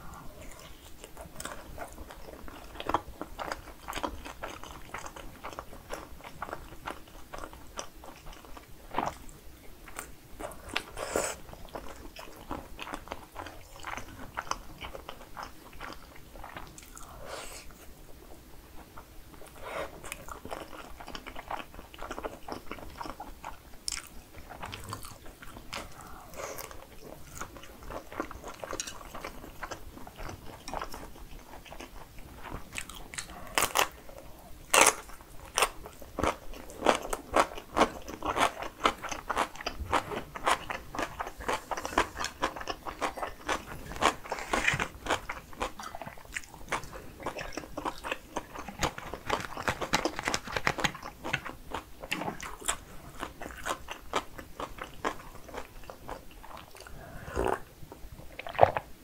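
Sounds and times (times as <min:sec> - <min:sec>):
biting and chewing sausage: 0:18.9 - 0:57.6.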